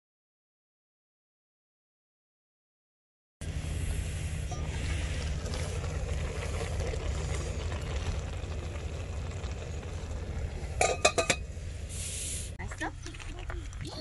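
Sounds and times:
gas camp stove rumbling: 3.4 - 14.0.

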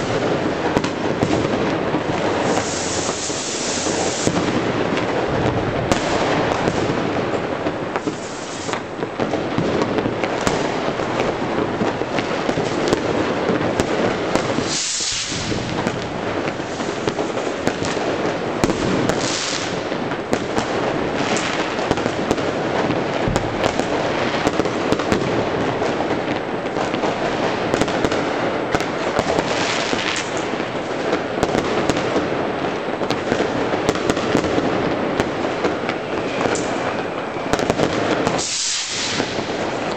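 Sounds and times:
distant firework bangs and crackles: 0.0 - 39.9
sharp firecracker bangs: 0.0 - 39.9
firework hisses: 2.2 - 4.6, 8.0 - 8.9, 14.4 - 18.0, 18.7 - 19.8, 38.2 - 39.9.

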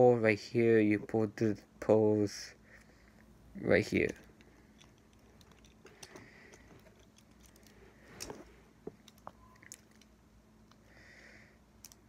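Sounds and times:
plastic toy parts clicking: 4.0 - 10.9, 11.8 - 12.0.

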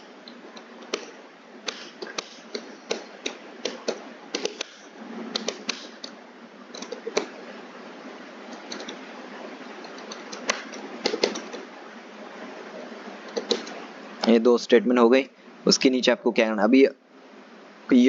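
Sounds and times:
steady hiss: 0.0 - 18.0
keyboard typing clicks: 9.8 - 11.6.

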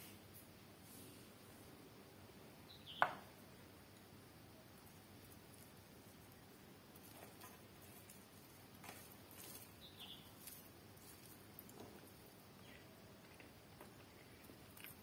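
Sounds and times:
low steady hiss: 0.0 - 15.0
fingers squishing rice on plate: 4.7 - 15.0.

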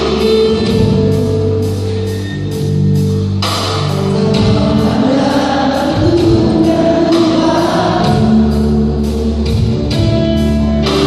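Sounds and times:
live band with electric guitar: 0.0 - 11.0
women singing gospel song: 4.2 - 10.0.

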